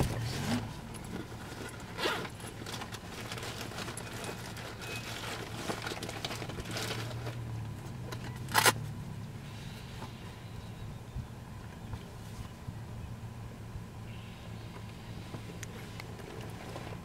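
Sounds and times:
lions crunching and tearing: 0.0s - 8.8s
vehicle engine idling: 0.0s - 17.0s.

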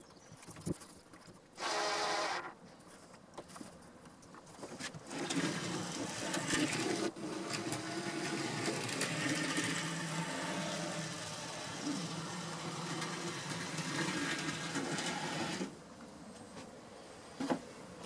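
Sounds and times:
model locomotive motor humming: 5.1s - 15.8s.

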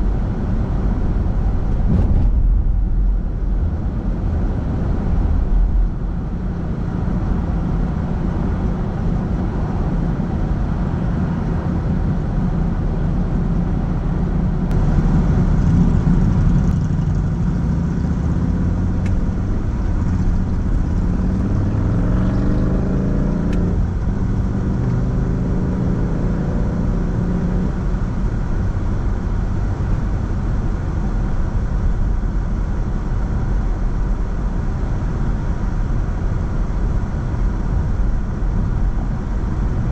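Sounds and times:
car engine driving: 0.0s - 39.9s
road noise: 0.0s - 39.9s.

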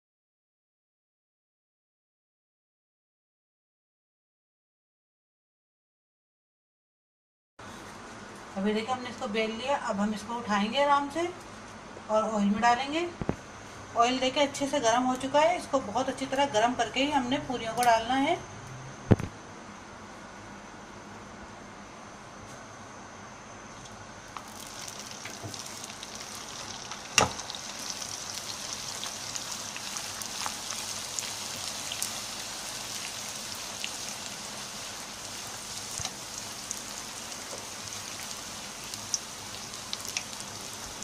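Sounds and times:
dough sizzling in hot oil: 24.3s - 41.0s
oil crackling: 24.3s - 41.0s.

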